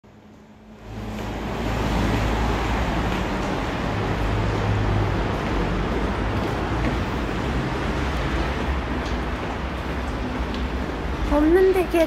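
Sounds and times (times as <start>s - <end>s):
moving vehicle rumble: 0.1s - 12.0s.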